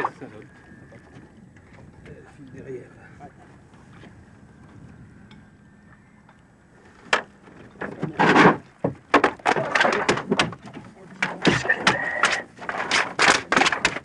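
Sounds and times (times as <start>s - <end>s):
fish slapping on boat floor: 8.0s - 14.0s.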